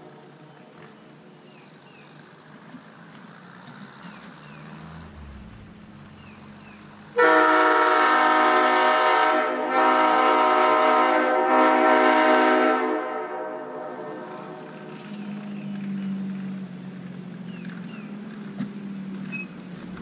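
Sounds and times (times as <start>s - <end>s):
air horn chord blasts: 7.2s - 14.4s.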